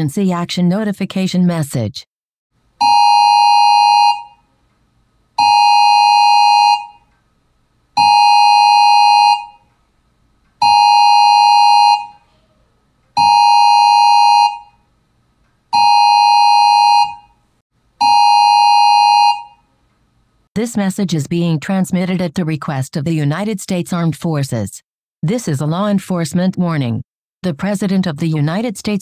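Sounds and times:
electronic emergency alert tone: 5.4 - 7.0, 8.0 - 9.5, 10.6 - 12.2, 13.2 - 14.7.

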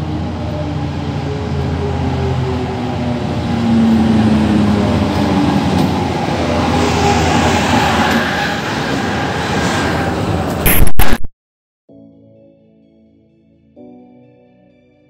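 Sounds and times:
train rumbling on rails: 0.0 - 10.7.

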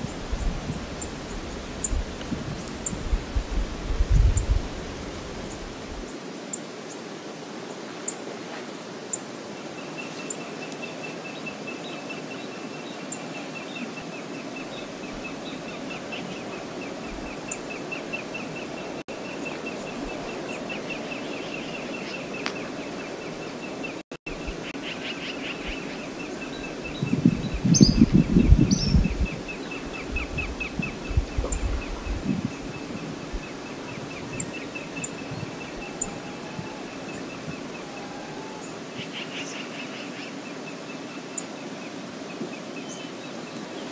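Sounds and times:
wind buffeting microphone: 0.0 - 6.1, 14.6 - 19.0, 25.6 - 38.8
background hiss: 0.0 - 43.9
small bird trilling: 34.4 - 37.2.

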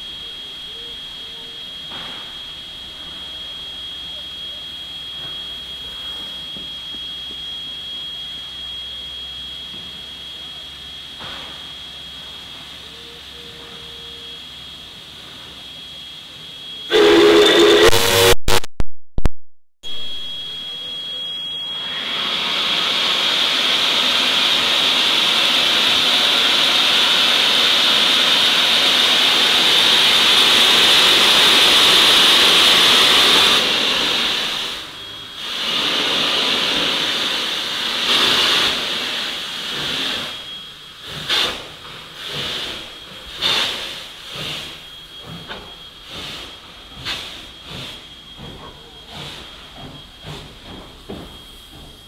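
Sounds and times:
locomotive exhaust chuffs: 14.3 - 18.3, 19.9 - 52.0
steam locomotive whistle: 16.3 - 18.6, 19.8 - 50.6
steam hissing: 16.9 - 18.2, 20.1 - 52.0.

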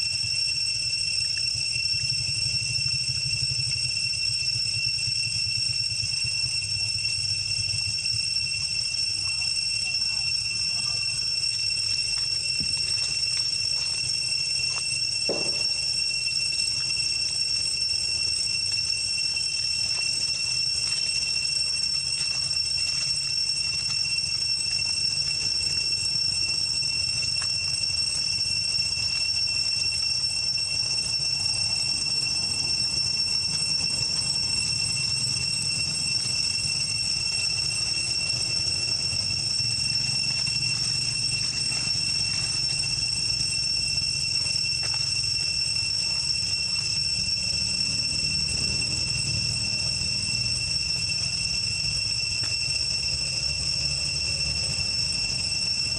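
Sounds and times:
cicadas droning: 0.0 - 55.9.

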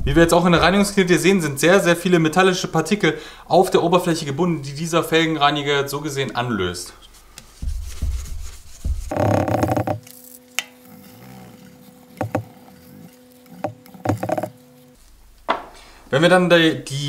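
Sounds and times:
faint steady hum: 0.9 - 7.6, 9.1 - 17.0
clay bar rubbing on wheel: 7.9 - 15.0.

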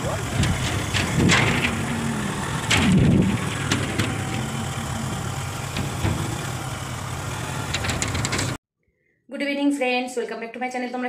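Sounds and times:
motor vehicle engine rumbling: 0.0 - 8.6.

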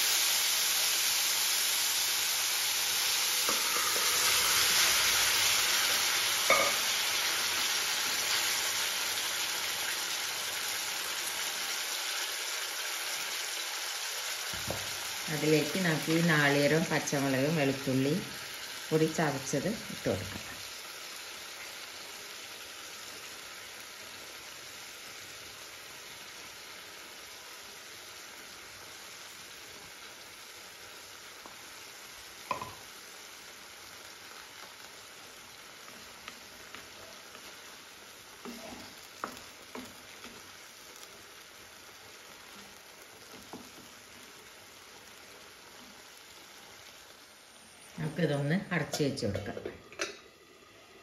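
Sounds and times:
food sizzling in oil: 0.0 - 51.0
wooden spatula knocking pan: 6.5 - 6.8, 32.5 - 32.8.

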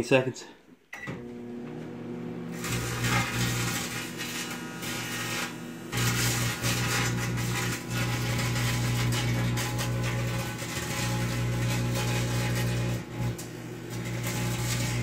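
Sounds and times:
microwave oven hum: 1.0 - 15.0
wire arcing crackle: 2.5 - 15.0.

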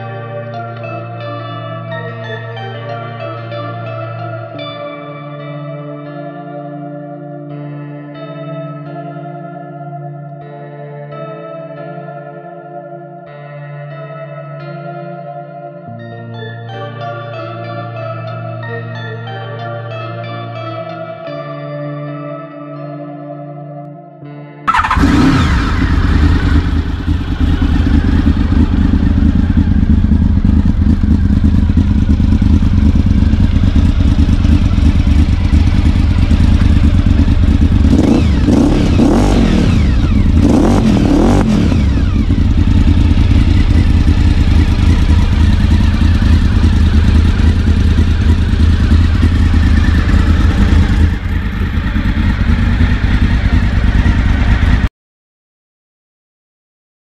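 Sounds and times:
motorcycle engine idling and revving: 24.7 - 54.9.

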